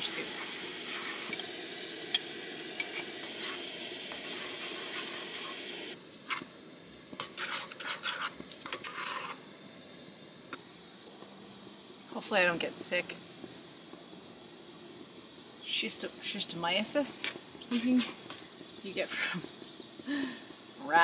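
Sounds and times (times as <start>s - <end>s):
camp stove hissing: 0.0s - 21.0s
metal spoon scraping pot: 7.2s - 9.4s.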